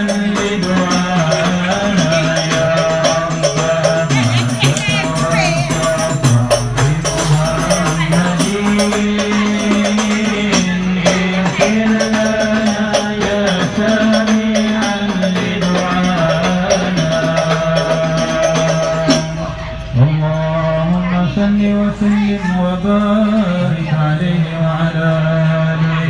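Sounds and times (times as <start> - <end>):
frame drum beats: 0.0 - 19.7
group of voices chanting: 0.0 - 26.0.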